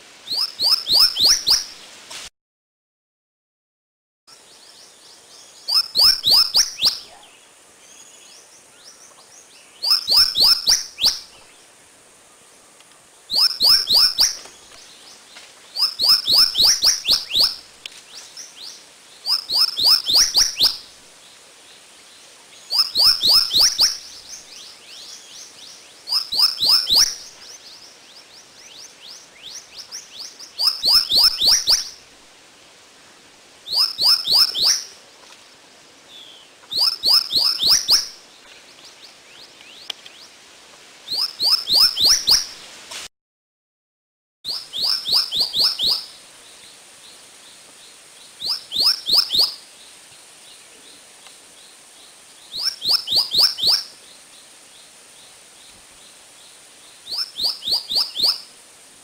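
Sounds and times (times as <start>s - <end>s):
songbird whistling falling notes: 0.3s - 1.7s, 9.8s - 11.2s, 13.3s - 14.8s, 15.8s - 17.6s, 30.6s - 32.0s, 33.7s - 34.9s, 41.1s - 42.5s, 44.5s - 46.1s.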